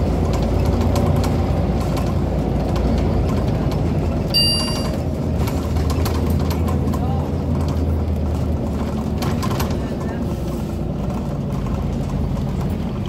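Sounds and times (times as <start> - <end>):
bus diesel engine: 0.0 - 13.0
road noise: 0.0 - 13.0
short electronic beep: 4.4 - 5.0.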